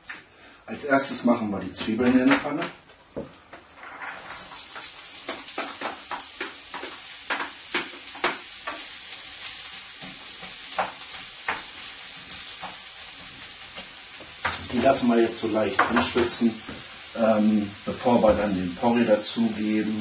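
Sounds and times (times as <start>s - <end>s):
spatula scraping a pan: 4.0s - 15.1s
onions sizzling in a frying pan: 4.2s - 20.0s.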